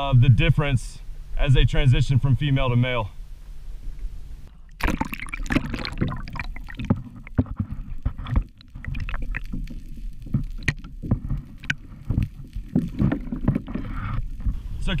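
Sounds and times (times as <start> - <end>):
low steady rumble: 0.0 - 15.0
water slapping against kayak hull: 4.8 - 14.9.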